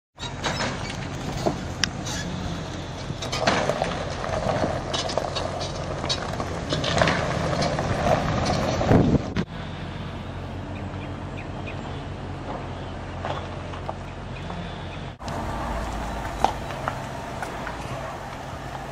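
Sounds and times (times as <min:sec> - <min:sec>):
outdoor noise: 0:00.2 - 0:18.9
vehicle engine running: 0:00.2 - 0:18.9
sharp knocks and clatter: 0:03.2 - 0:08.9.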